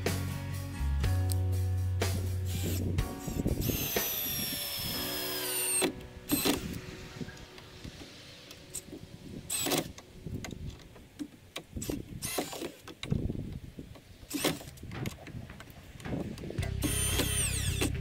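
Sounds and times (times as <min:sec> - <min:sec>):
cordless drill driving screws: 0:02.5 - 0:06.8, 0:09.5 - 0:09.9, 0:11.8 - 0:13.1, 0:14.3 - 0:14.7, 0:16.8 - 0:18.0
handling clicks and knocks: 0:09.6 - 0:18.0.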